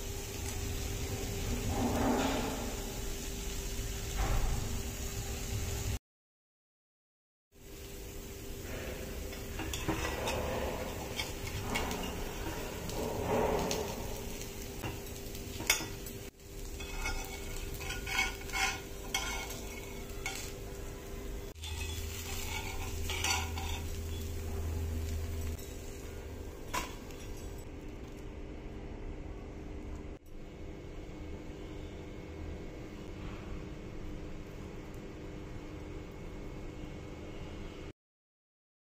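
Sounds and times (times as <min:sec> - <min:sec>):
faint sizzle: 0:00.0 - 0:06.0, 0:07.6 - 0:37.9
spatula scraping griddle: 0:08.6 - 0:27.6
spatula clinking against pan: 0:16.8 - 0:20.5, 0:21.6 - 0:24.2.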